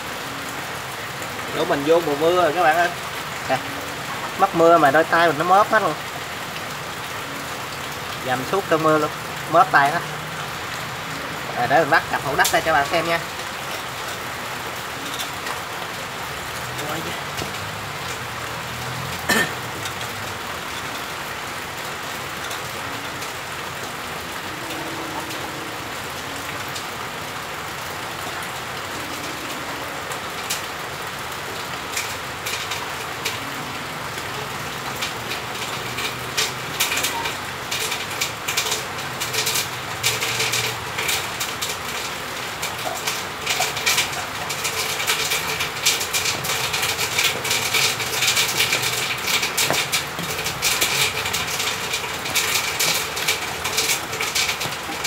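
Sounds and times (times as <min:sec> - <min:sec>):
rain hiss: 0:00.0 - 0:55.0
wire trap clicking and rattling: 0:42.8 - 0:55.0.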